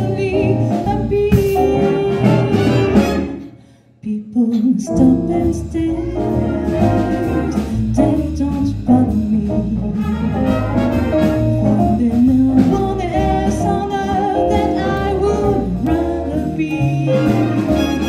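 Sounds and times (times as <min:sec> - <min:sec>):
saxophones and brass chords: 0:01.6 - 0:03.7, 0:06.0 - 0:08.0, 0:09.9 - 0:11.9, 0:17.0 - 0:18.0
person singing: 0:04.0 - 0:10.3
keyboard bass and drums: 0:05.0 - 0:18.0.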